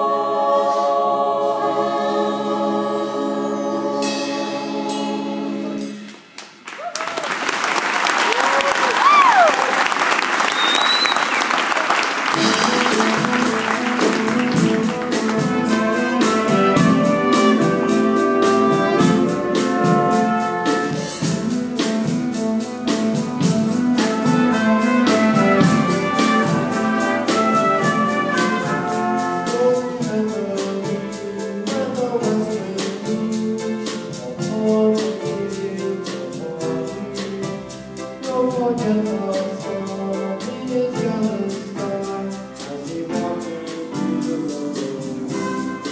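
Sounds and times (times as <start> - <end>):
choir singing: 0.0 - 6.0, 12.4 - 21.9
band with brass and drums: 0.0 - 45.9
applause: 6.4 - 15.4.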